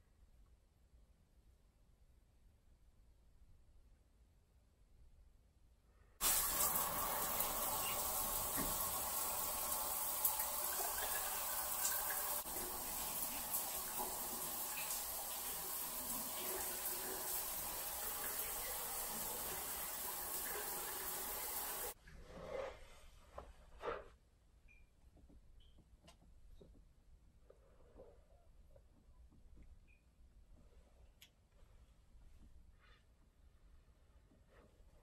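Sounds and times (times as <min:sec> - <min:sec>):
shower running: 0:06.2 - 0:22.0.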